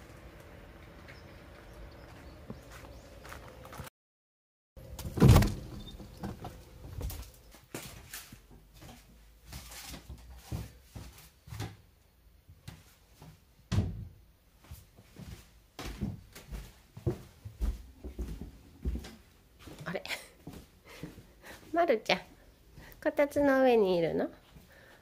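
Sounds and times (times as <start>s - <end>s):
footsteps on wooden floor: 1.1s - 3.9s, 14.7s - 19.8s
door closing with thump: 5.0s - 6.6s, 13.7s - 14.1s.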